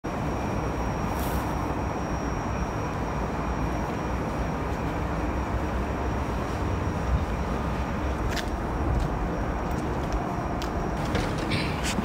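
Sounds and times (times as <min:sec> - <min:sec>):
thin high whine: 0:00.1 - 0:09.6
low rumble of railway platform: 0:00.1 - 0:12.0.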